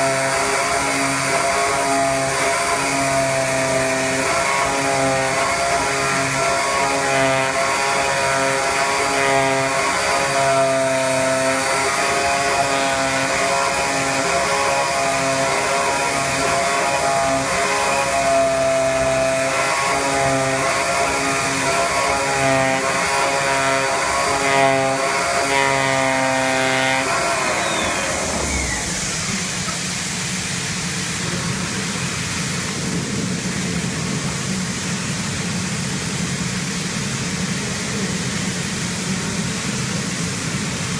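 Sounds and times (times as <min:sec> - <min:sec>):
machine winding down whine: 0:00.0 - 0:30.3
steady rushing machine noise: 0:00.0 - 0:40.9
cutting machine pulsing tones: 0:09.0 - 0:29.8.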